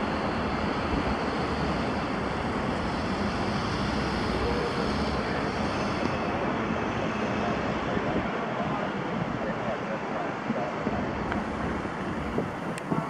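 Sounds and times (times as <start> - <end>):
jet engines at takeoff: 0.0 - 13.0.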